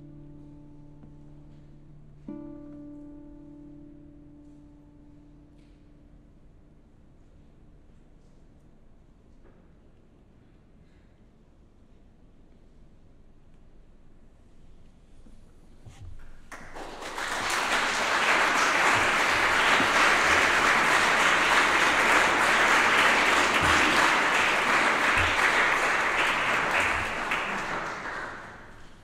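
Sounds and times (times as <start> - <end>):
audience applauding: 16.5 - 29.0.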